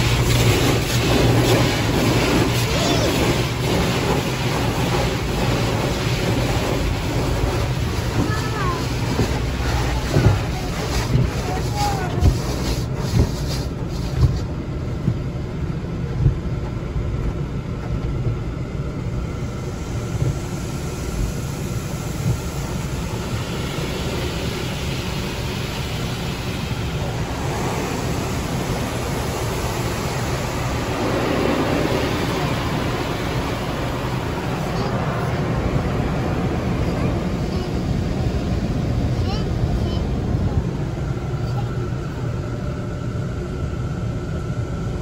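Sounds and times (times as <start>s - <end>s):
water jets hissing on glass: 0.0s - 14.5s, 19.6s - 41.7s
car wash brushes scrubbing windshield: 0.0s - 15.3s, 22.2s - 38.8s.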